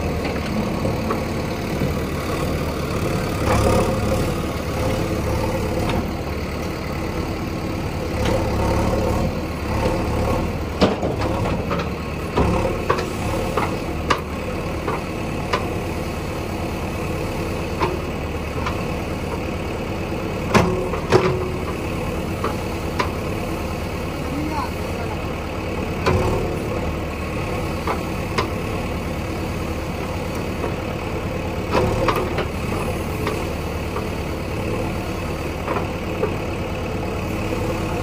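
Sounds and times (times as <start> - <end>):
diesel engine running: 0.0 - 38.0
sharp knocks and clanks: 10.8 - 14.3.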